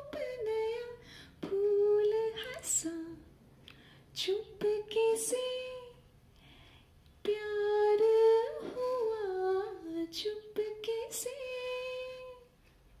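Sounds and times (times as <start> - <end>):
woman singing into microphone: 0.0 - 3.2, 7.3 - 12.5.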